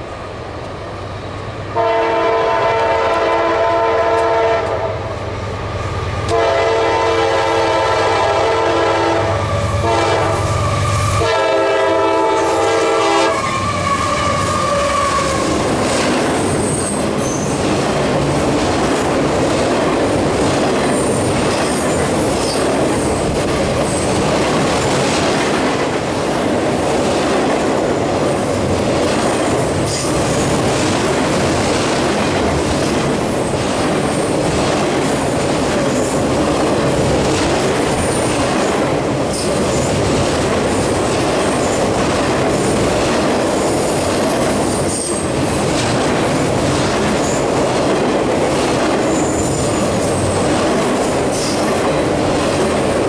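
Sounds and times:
train wheels rumbling on rail: 0.0s - 53.0s
rail joint clicks: 4.1s - 6.7s, 13.3s - 53.0s.

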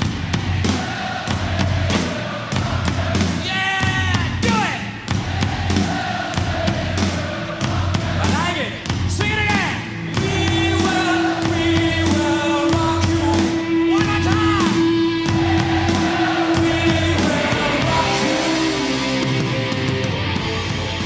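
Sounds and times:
crowd singing along: 0.0s - 3.6s, 4.8s - 8.6s, 9.8s - 21.0s
singer's voice: 0.8s - 5.0s, 7.0s - 20.0s
electric guitar: 10.2s - 21.0s.

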